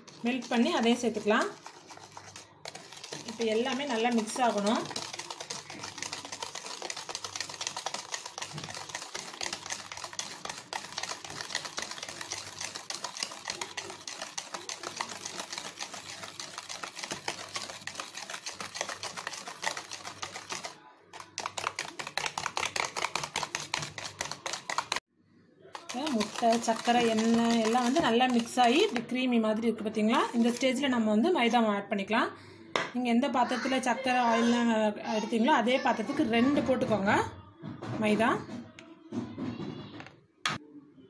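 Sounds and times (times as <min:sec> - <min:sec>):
whisk beating batter in bowl: 0:00.0 - 0:25.0, 0:25.7 - 0:29.2, 0:30.0 - 0:30.8.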